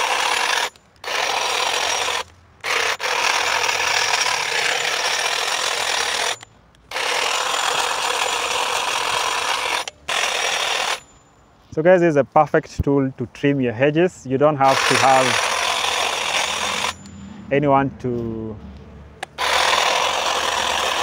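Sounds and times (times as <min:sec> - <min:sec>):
hedge trimmer cutting bush: 0:00.0 - 0:11.0, 0:14.6 - 0:17.1, 0:19.2 - 0:21.0.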